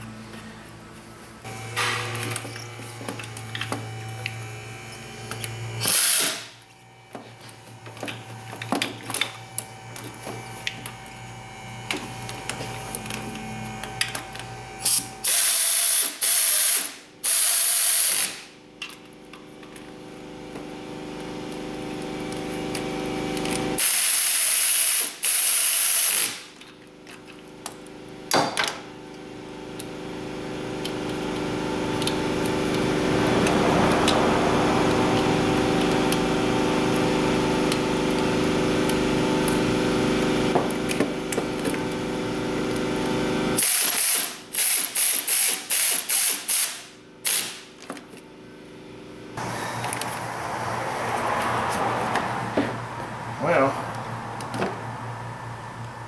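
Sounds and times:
pneumatic air ratchet bursts: 5.8 - 6.6, 14.8 - 18.5, 23.8 - 26.5, 43.6 - 47.7.

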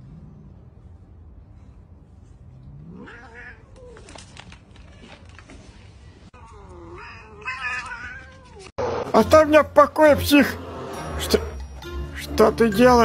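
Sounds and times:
cat yowling: 2.9 - 4.1, 6.4 - 8.7.

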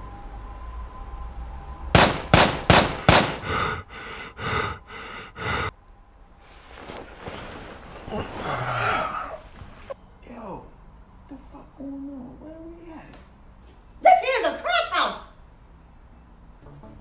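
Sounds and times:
dull echoing thuds: 2.0 - 3.6
loud sharp bangs: 2.0 - 3.6.

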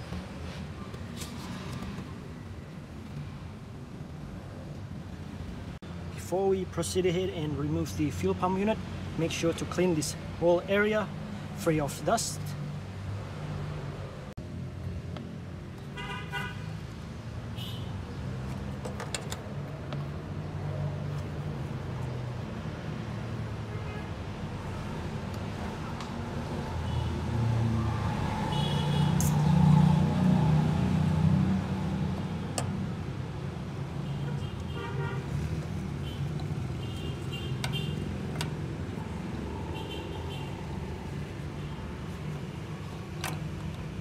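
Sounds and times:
vehicle engines and traffic rumble: 0.0 - 44.0
connector clicks: 37.6 - 38.6.

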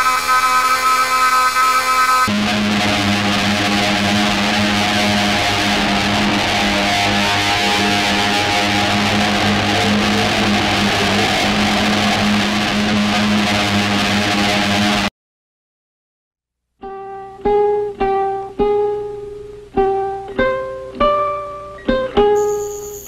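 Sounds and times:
low guitar drone: 0.0 - 15.1.

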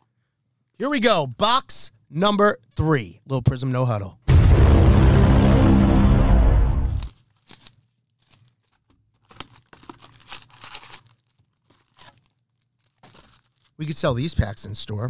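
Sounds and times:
music: 4.3 - 7.1
foil packs crinkling: 7.0 - 14.0
cardboard box tearing: 9.2 - 11.1.

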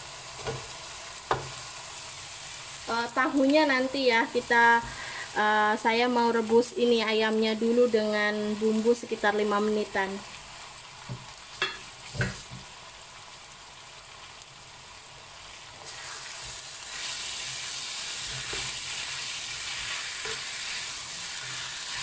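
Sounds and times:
chicken sizzling in a wok: 0.0 - 22.0
spatula stirring and scraping: 16.0 - 22.0.

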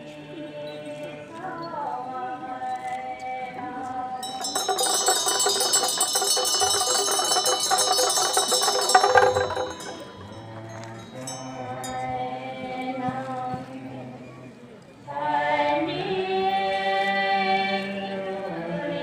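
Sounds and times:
steady held notes: 4.2 - 12.2
rapid metallic percussion ringing: 4.2 - 12.3.

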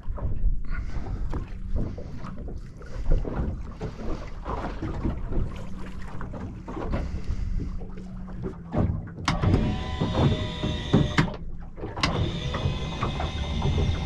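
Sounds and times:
gear knocking on boat deck: 8.5 - 11.4, 12.0 - 14.0.

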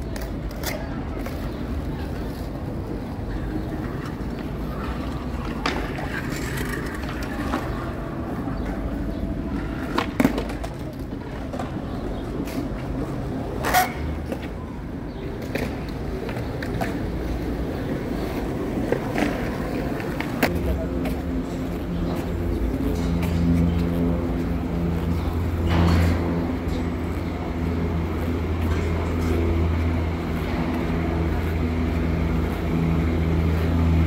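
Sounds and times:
skateboard clacking: 0.0 - 25.5
skateboard wheels rolling on asphalt: 0.0 - 34.0.

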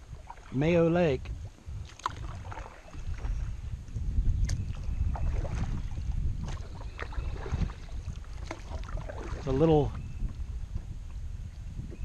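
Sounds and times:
wind rumbling on microphone: 0.0 - 12.0
paddle splashing in water: 0.1 - 0.6, 1.8 - 3.4, 4.4 - 10.0.

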